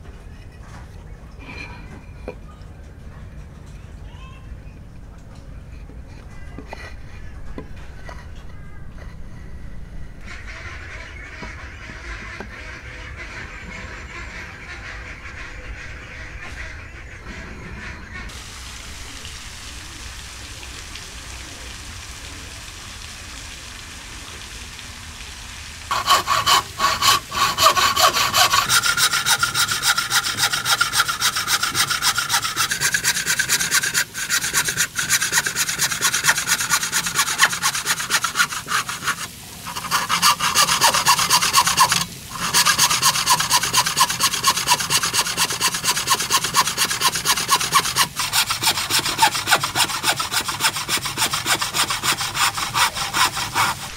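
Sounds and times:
hand saw cutting wood: 25.9s - 53.9s.

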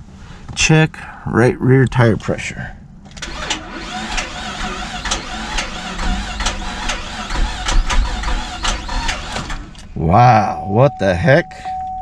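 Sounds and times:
starter motor cranking engine: 3.1s - 9.9s.

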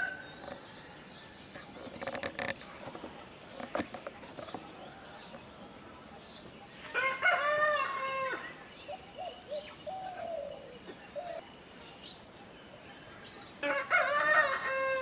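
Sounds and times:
rooster crowing: 7.0s - 8.5s, 13.6s - 15.0s.

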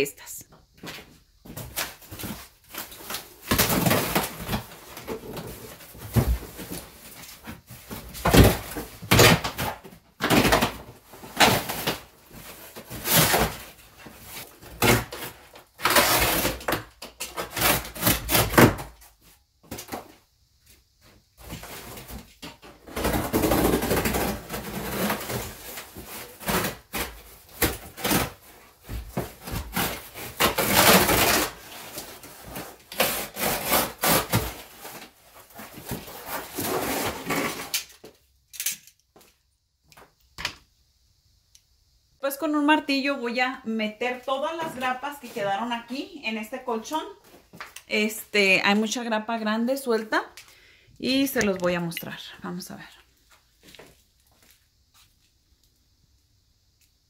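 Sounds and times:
cardboard tearing and rustling: 1.6s - 19.1s, 21.4s - 38.1s.

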